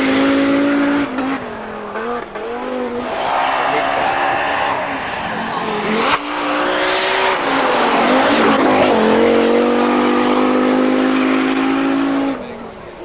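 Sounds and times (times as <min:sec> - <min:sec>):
rally car engine at full throttle: 0:00.0 - 0:13.0.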